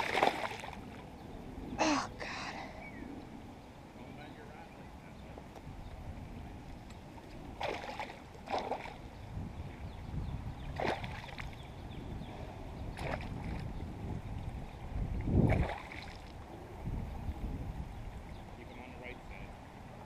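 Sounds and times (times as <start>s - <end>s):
fish thrashing splashes: 0.0s - 0.8s
wind rumble on microphone: 0.0s - 20.0s.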